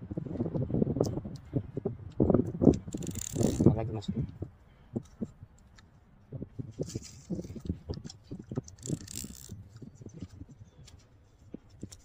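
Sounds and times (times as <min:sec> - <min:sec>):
fishing reel rattling and knocking: 0:02.6 - 0:03.9, 0:06.8 - 0:10.5.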